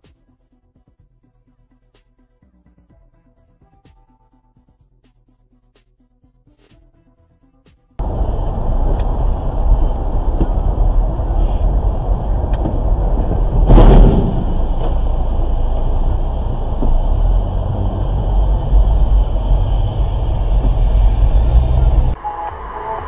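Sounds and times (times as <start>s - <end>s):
loud burst of noise: 8.0s - 22.2s
road and engine rumble: 8.0s - 23.0s.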